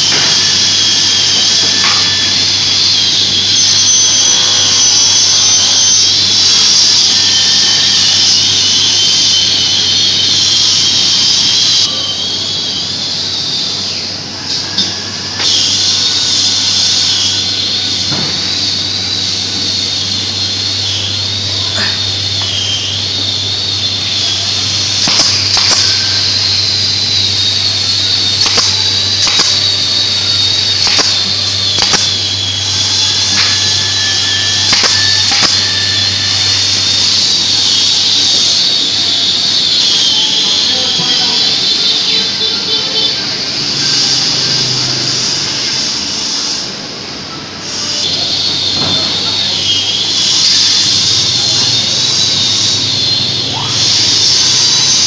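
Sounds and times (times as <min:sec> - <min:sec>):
shop machinery whining: 0:00.0 - 0:55.0
brad nailer snapping: 0:25.0 - 0:26.2, 0:28.3 - 0:32.2, 0:33.0 - 0:33.8, 0:34.6 - 0:35.6.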